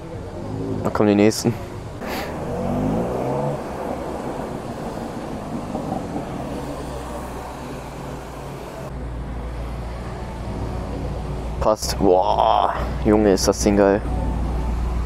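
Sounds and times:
car engine accelerating: 0:00.0 - 0:09.0.

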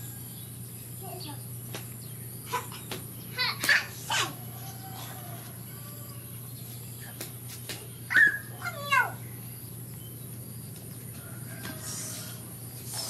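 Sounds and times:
baby monkey squealing: 0:08.1 - 0:09.2.

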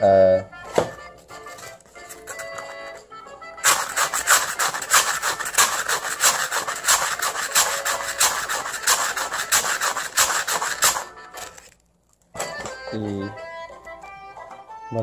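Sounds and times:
rasping percussion scrapes: 0:03.6 - 0:11.6.

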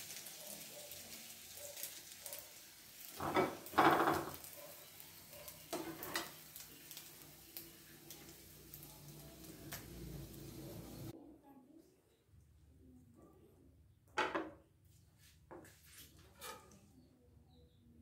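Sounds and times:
oil sizzling in a wok: 0:00.0 - 0:11.2
skimmer scraping a wok: 0:05.5 - 0:06.6, 0:15.6 - 0:16.9.

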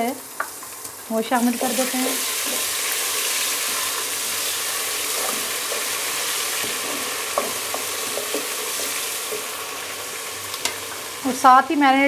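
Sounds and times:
onions sizzling in hot oil: 0:00.0 - 0:12.0
spoon knocking against pot: 0:06.6 - 0:09.0.

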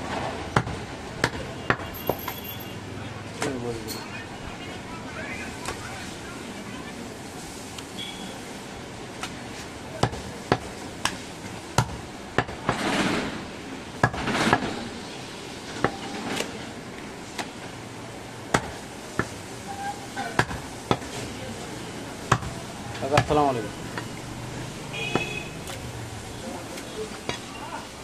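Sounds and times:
knife chopping meat on wood: 0:22.3 - 0:23.4.

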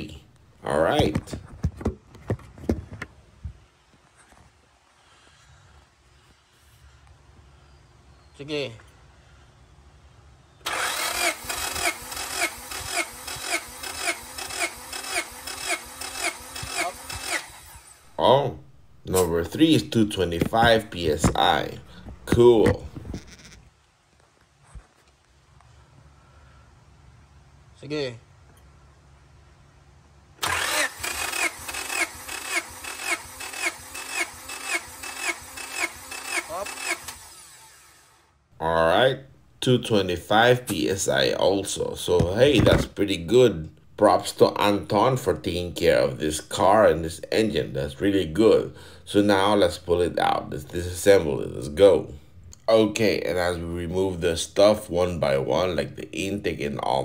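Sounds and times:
engine cranking on starter motor: 0:10.6 - 0:23.5, 0:30.4 - 0:38.4.

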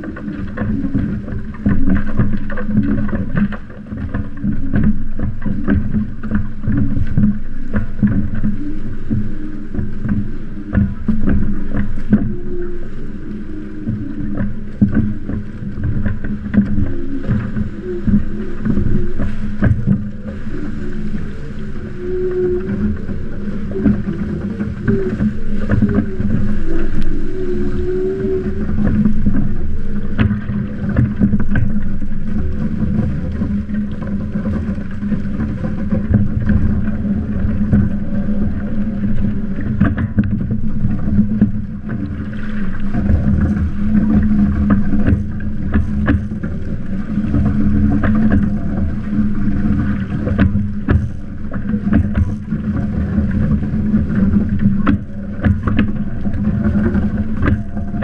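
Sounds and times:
water rushing past hull: 0:00.0 - 0:58.0
wavering tone: 0:07.3 - 0:30.9.

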